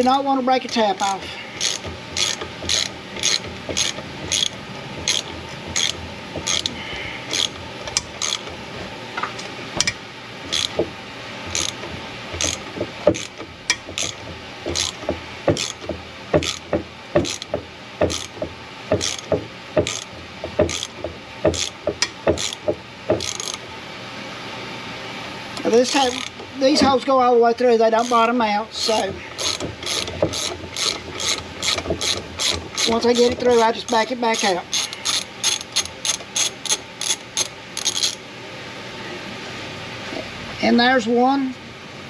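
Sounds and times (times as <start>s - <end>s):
socket ratchet clicking: 1.6s - 8.6s, 9.8s - 10.8s, 11.5s - 23.6s, 29.4s - 38.2s.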